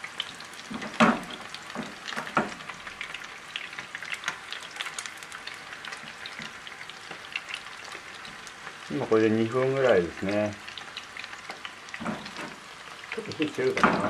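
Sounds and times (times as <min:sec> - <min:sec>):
chicken sizzling in a frying pan: 0:00.0 - 0:14.0.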